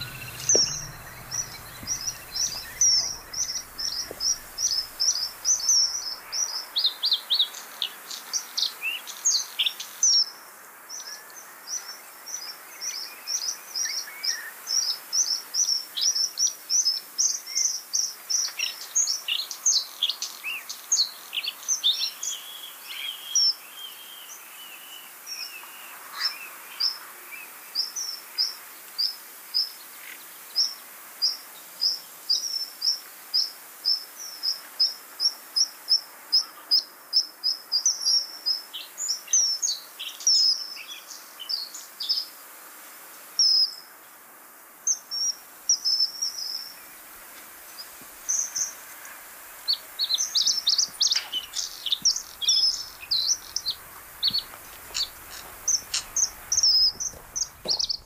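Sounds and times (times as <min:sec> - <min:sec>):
bird singing high chirps: 0:00.0 - 0:06.5, 0:49.7 - 0:58.0
faint marsh background hiss: 0:00.0 - 0:58.0.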